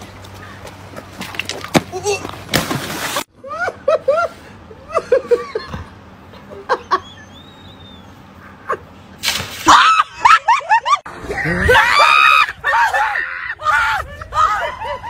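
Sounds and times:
shrill screaming: 11.3s - 14.8s.

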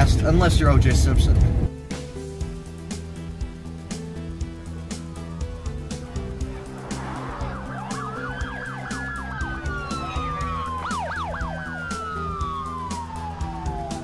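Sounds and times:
background music: 0.0s - 14.0s
police siren wailing: 4.1s - 14.0s
siren yelps: 4.8s - 14.0s.

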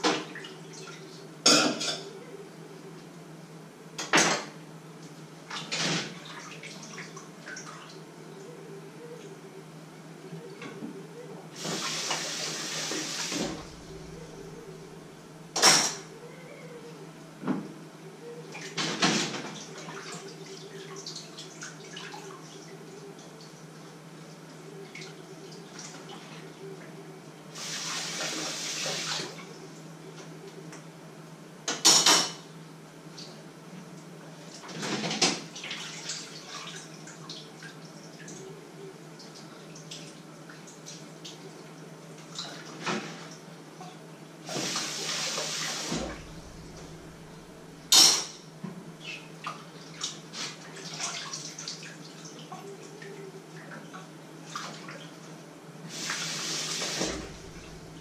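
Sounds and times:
dishes clattering in a sink: 1.5s - 2.1s, 4.0s - 4.6s, 15.6s - 16.1s, 18.6s - 19.6s, 31.7s - 32.5s, 34.6s - 35.5s, 47.9s - 48.4s
steady low hum: 13.3s - 18.7s, 45.9s - 50.0s, 57.0s - 58.0s
kitchen tap running: 55.9s - 58.0s.

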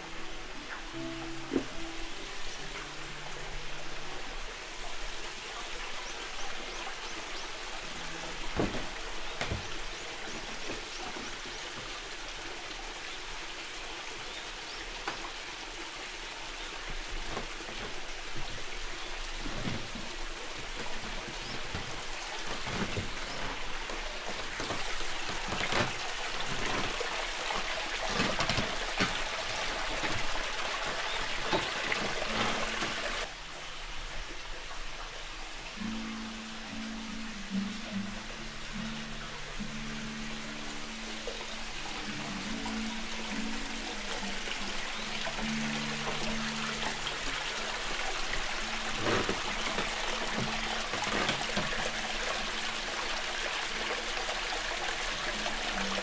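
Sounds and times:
water splashing and trickling: 0.0s - 56.0s
water drips and plops: 4.6s - 33.3s, 40.9s - 56.0s.

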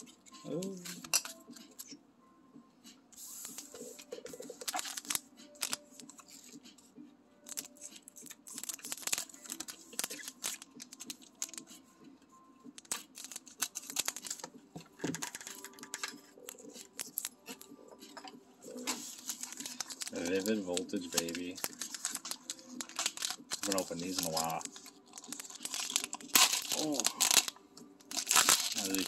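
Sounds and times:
foil wrappers crinkling: 4.3s - 6.3s, 7.5s - 11.7s, 12.8s - 14.5s, 15.1s - 17.7s, 18.7s - 29.0s.

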